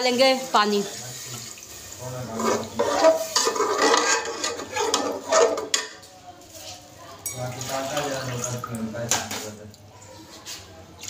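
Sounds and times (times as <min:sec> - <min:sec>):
metal spatula scraping in pot: 0:01.1 - 0:08.0.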